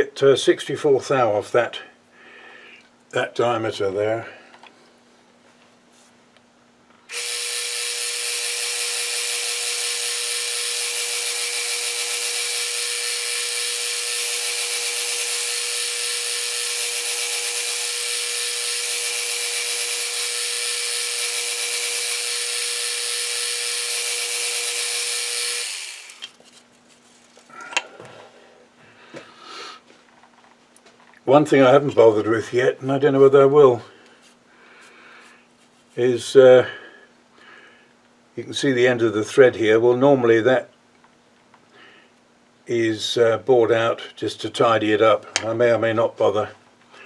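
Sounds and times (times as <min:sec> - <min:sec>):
metal lathe whining: 0:07.1 - 0:26.3.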